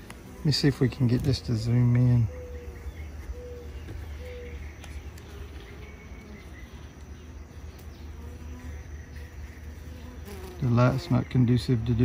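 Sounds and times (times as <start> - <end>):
bees buzzing around hive: 0.0 - 12.0
single bees flying past: 7.8 - 11.3.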